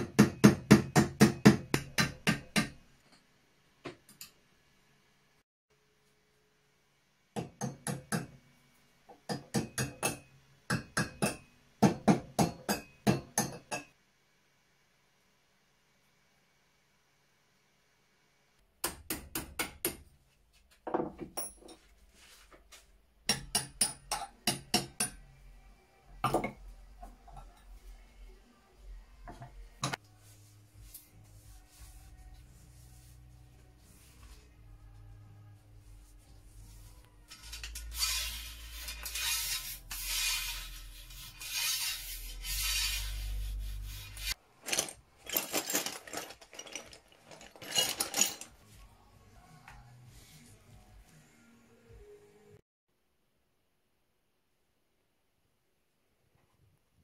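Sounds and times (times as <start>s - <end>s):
rasping scrubbing on rusty steel: 37.7s - 44.4s
metal parts clattering: 44.6s - 48.6s.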